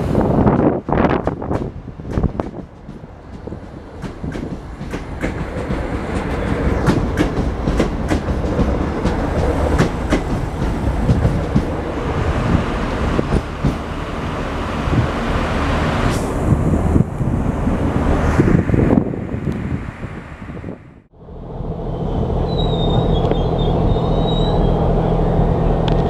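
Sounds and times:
train rumble: 0:00.0 - 0:26.0
train wheels clicking over rail joints: 0:00.4 - 0:12.0, 0:13.0 - 0:14.0.

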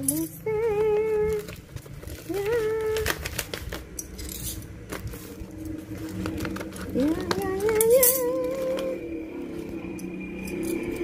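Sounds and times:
person humming: 0:02.2 - 0:03.2.

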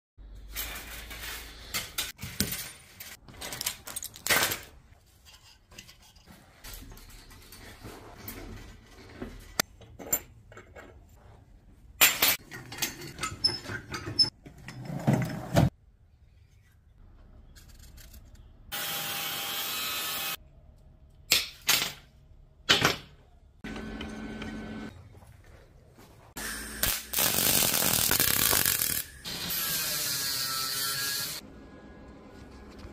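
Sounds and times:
angle grinder cutting steel wire: 0:18.7 - 0:20.4, 0:26.4 - 0:31.4.

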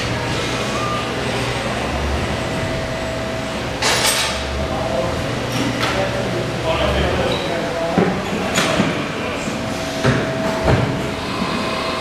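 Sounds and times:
low hum: 0:00.0 - 0:05.5, 0:09.4 - 0:12.0.

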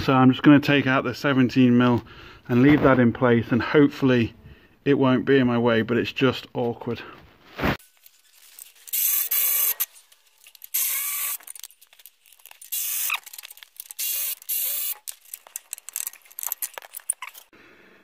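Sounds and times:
ratchet wrench clicking: 0:08.9 - 0:09.9, 0:10.5 - 0:11.7, 0:12.4 - 0:17.4
small clicks and knocks: 0:09.8 - 0:17.5.

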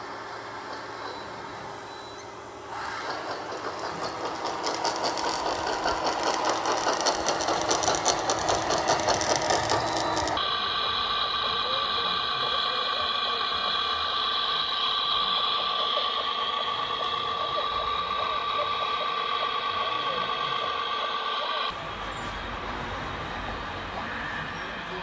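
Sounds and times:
hydraulic pump whine: 0:00.0 - 0:25.0
toy tracked loader whirring clatter: 0:02.7 - 0:21.8.

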